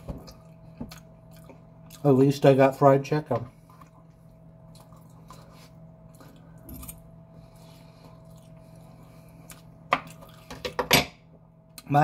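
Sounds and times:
low hum: 0:00.0 - 0:11.9
soft chewing: 0:00.2 - 0:02.2, 0:03.5 - 0:10.6.

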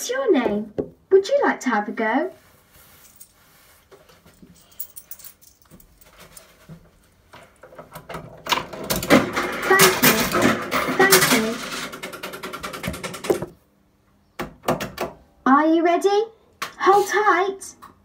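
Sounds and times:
coin dropping into slot: 0:08.8 - 0:13.5.

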